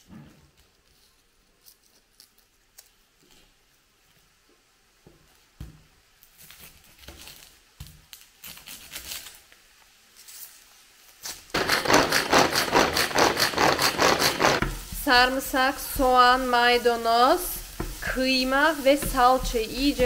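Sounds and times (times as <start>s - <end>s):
meat sizzling in a hot pan: 11.2s - 20.0s.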